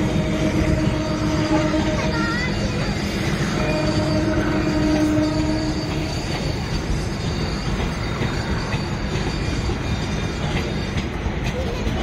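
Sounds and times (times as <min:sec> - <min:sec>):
low held train horn tone: 0:00.0 - 0:06.6
freight train wagons rumbling: 0:00.0 - 0:12.0
wheels clicking over rail joints: 0:00.0 - 0:12.0
faint high wheel squeal: 0:00.4 - 0:12.0.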